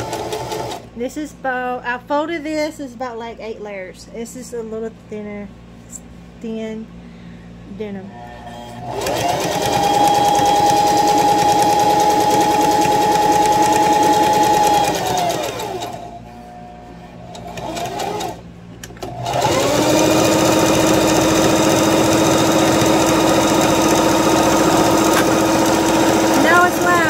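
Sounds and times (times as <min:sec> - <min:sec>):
sewing machine motor whine: 0:00.0 - 0:00.9, 0:08.1 - 0:18.4, 0:19.0 - 0:27.0.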